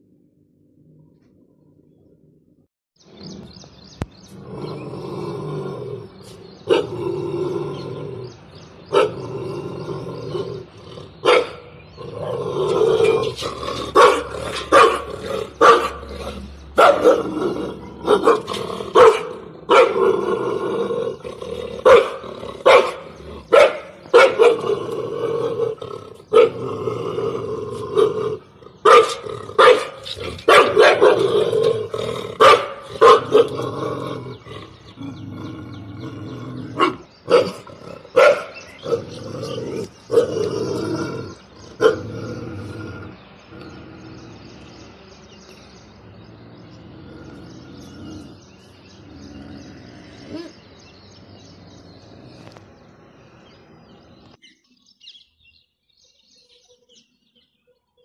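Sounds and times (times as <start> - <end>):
dog growling: 4.3 - 44.7, 46.5 - 50.7
dog barking: 8.9 - 9.2, 11.2 - 11.7, 13.9 - 16.0, 16.8 - 17.3, 18.0 - 20.0, 21.8 - 24.7, 26.3 - 26.6, 28.8 - 31.3, 32.4 - 33.6, 36.8 - 39.1, 41.8 - 42.0.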